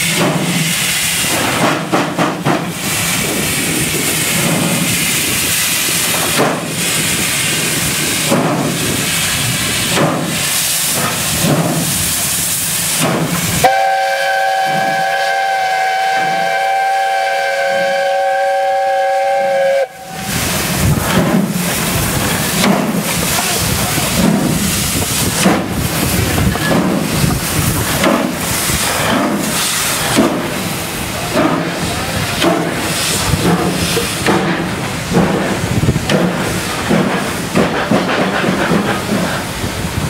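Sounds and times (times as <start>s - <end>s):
steam hissing: 0.0s - 40.0s
steam locomotive exhaust beats: 0.0s - 40.0s
steam whistle chord: 13.6s - 20.3s.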